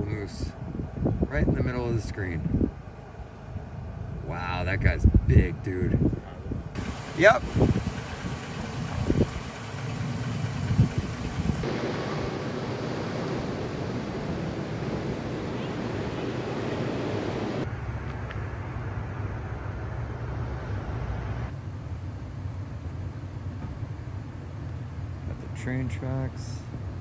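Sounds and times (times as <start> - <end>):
vehicle road and wind noise: 0.0 - 27.0
low rumble: 3.5 - 25.0.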